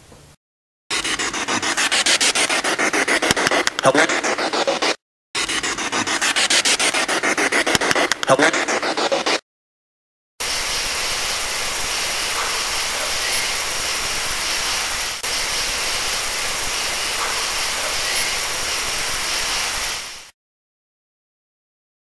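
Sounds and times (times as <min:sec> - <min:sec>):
loud static hiss: 0:10.4 - 0:20.3.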